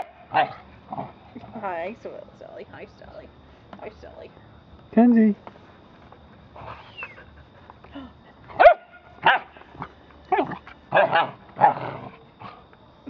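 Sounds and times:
dog barking: 0.0 - 0.6, 8.6 - 9.6, 10.4 - 11.8.

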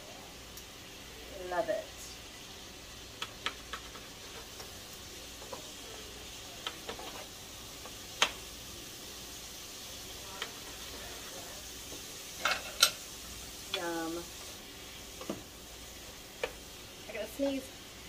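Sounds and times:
food sizzling in a frying pan: 0.0 - 18.0
utensil tapping against pan: 3.2 - 4.0.

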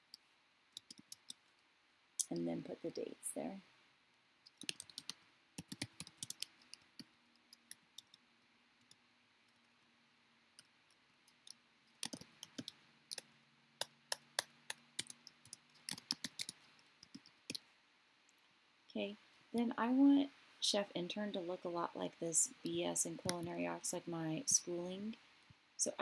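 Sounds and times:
computer keyboard typing: 0.8 - 1.4, 4.4 - 8.2, 11.3 - 13.2, 14.1 - 17.6.

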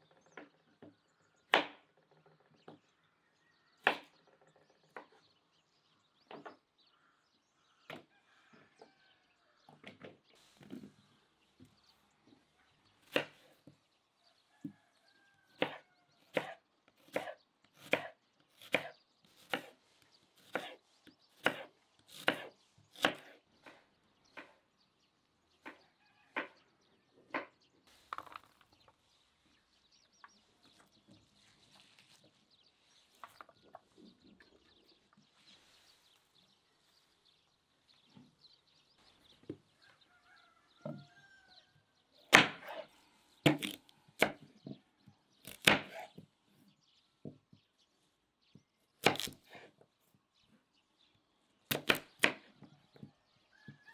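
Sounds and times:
knife cutting on wooden board: 15.6 - 19.8, 20.4 - 23.8, 42.3 - 44.3, 45.4 - 46.2, 49.0 - 49.7.

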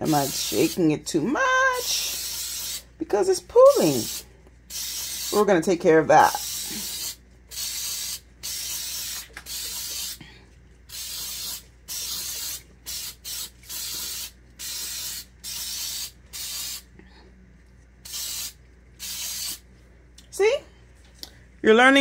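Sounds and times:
spray bottle hissing: 0.0 - 0.8, 1.8 - 2.9, 3.7 - 5.5, 6.3 - 10.2, 10.9 - 16.9, 18.0 - 19.6.

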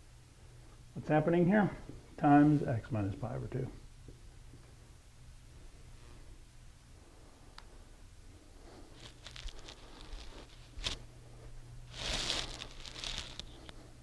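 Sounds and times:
low steady hum: 0.0 - 14.0
rustling handling noises: 8.7 - 13.9.

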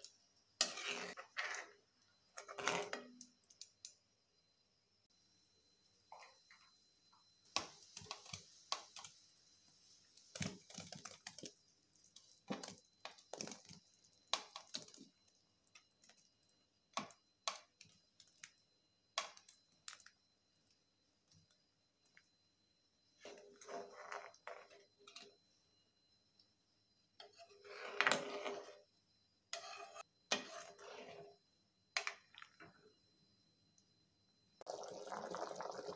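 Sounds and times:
food scraping against plate: 0.6 - 1.8, 2.4 - 3.2, 27.3 - 28.8, 29.5 - 31.3.

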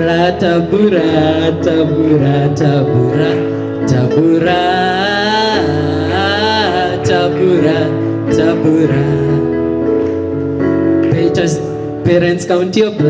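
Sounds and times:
male a cappella group singing: 0.0 - 9.6.

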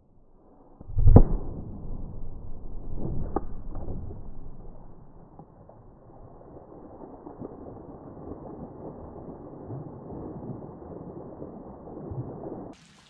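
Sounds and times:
muffled low rumbling: 0.0 - 6.5.

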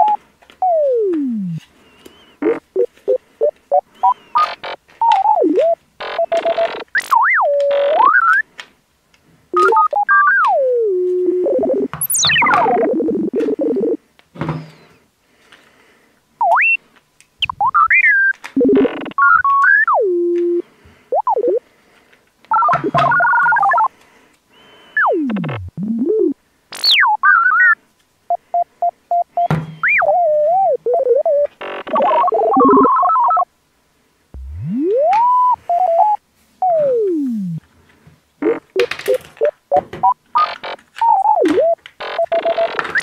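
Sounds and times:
synthesizer notes swooping in pitch: 9.6 - 14.0, 34.4 - 37.6.

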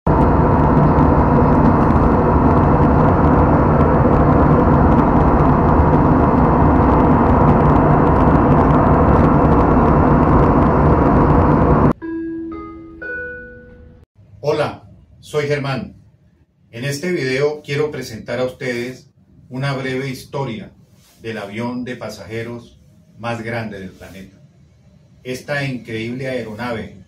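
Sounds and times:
airliner cabin engine rush: 0.0 - 12.0
chime jingle: 12.0 - 14.0.

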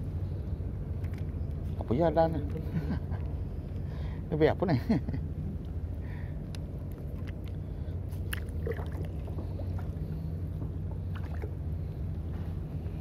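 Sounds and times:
low hum: 0.0 - 13.0
water lapping around a kayak: 6.0 - 13.0
splashes: 8.2 - 9.9, 11.0 - 11.6.

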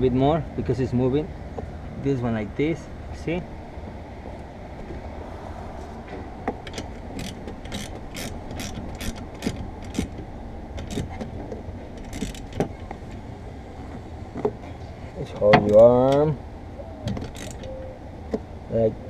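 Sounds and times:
steady low hum: 0.0 - 19.0
ratchet wrench clicking: 6.7 - 10.2, 12.0 - 12.6, 17.3 - 17.6.

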